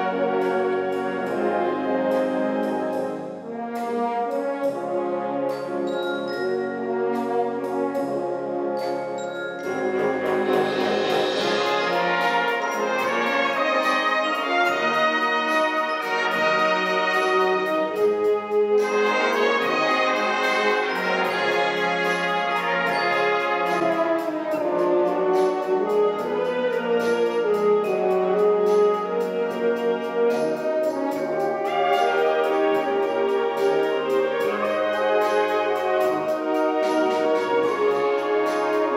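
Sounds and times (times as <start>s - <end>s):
wind band with brass: 0.0s - 38.9s
drum kit beat: 9.6s - 38.9s.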